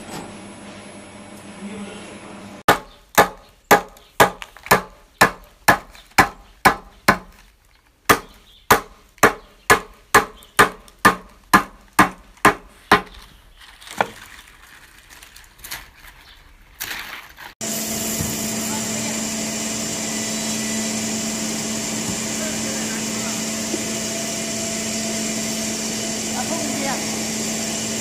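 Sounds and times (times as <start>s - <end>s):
wooden mallet pounding: 2.7s - 7.4s, 8.1s - 13.2s
leaves rustling: 12.4s - 18.8s.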